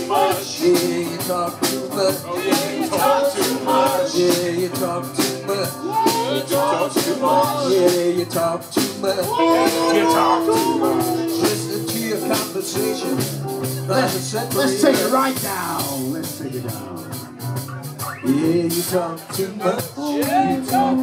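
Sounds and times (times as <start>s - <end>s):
live rock band playing: 0.0s - 21.0s
electric guitar lead line: 9.3s - 15.0s.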